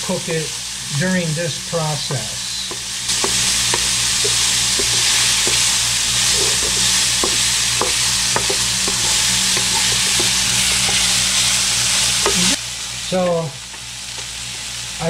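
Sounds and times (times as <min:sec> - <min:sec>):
vegetables sizzling in oil: 0:00.0 - 0:15.0
wooden spatula scraping pan: 0:03.1 - 0:11.6.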